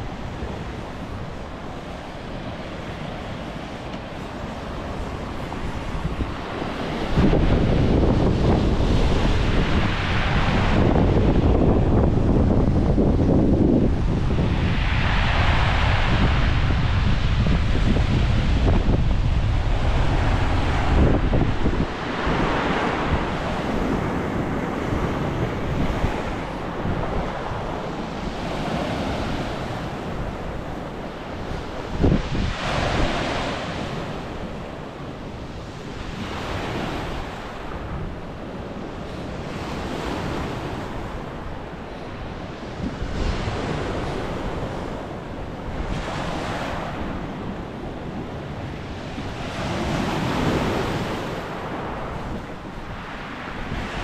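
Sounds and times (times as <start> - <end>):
sea waves breaking on shore: 0.0 - 54.0
wind buffeting microphone: 0.0 - 54.0.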